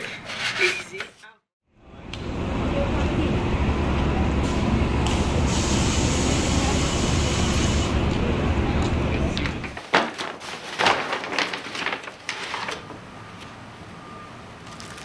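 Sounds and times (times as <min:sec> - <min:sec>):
traffic rumble: 0:01.8 - 0:09.9
air hiss: 0:05.0 - 0:08.0.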